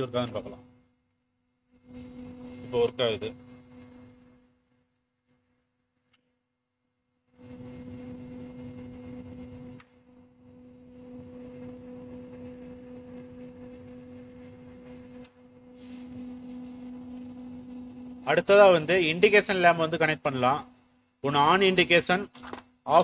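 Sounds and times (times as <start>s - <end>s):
cooling fan humming: 0.0s - 6.2s, 6.9s - 23.0s
fan click: 9.7s - 10.0s.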